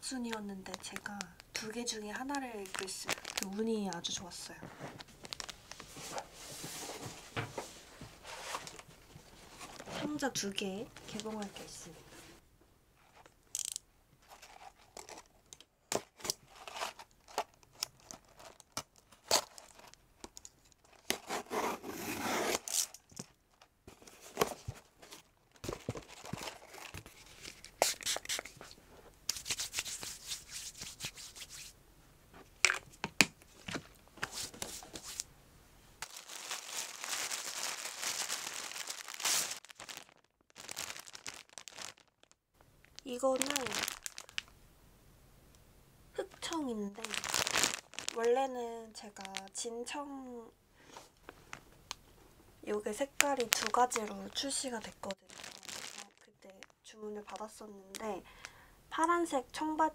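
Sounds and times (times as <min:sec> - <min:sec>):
packaging tearing and crinkling: 0:02.4 - 0:04.1, 0:05.0 - 0:05.8, 0:16.2 - 0:20.0, 0:20.8 - 0:23.3, 0:24.2 - 0:28.7, 0:36.0 - 0:44.5, 0:47.0 - 0:48.4, 0:53.2 - 0:56.7.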